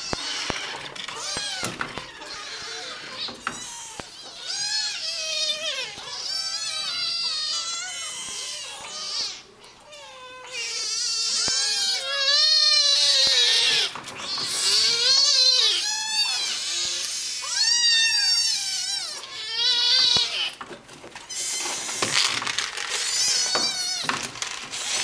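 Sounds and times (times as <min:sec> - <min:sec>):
kittens mewing: 0:00.0 - 0:20.6, 0:21.3 - 0:25.0.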